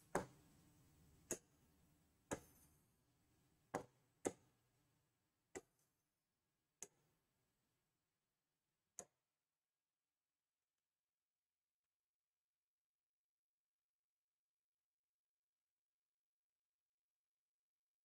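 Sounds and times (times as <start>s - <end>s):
stylus tapping on touchscreen: 0.0s - 0.4s, 1.2s - 1.6s, 2.3s - 2.8s, 3.7s - 4.6s, 5.5s - 5.8s.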